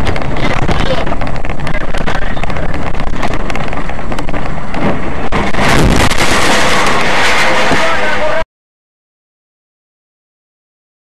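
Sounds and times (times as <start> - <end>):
crackles: 0.0 - 8.4
rough vehicle noise: 0.0 - 8.4
wind noise on microphone: 0.0 - 8.4.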